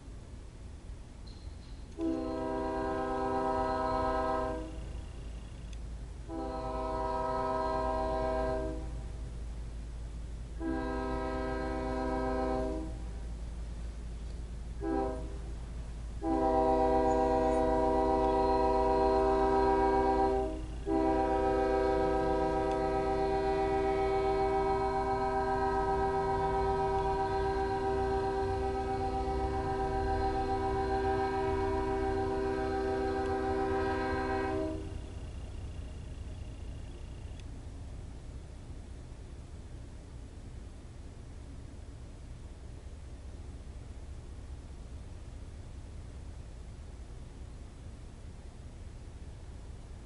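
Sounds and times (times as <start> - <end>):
low diesel rumble: 0.0 - 50.0
locomotive air horn blasts: 1.9 - 5.0, 6.2 - 9.1, 10.6 - 13.2, 14.8 - 15.6, 16.2 - 36.2.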